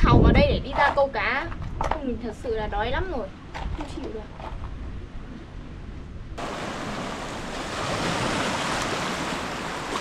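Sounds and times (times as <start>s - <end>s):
wind rumbling on microphone: 0.0s - 10.0s
sea waves washing onto beach: 6.4s - 10.0s.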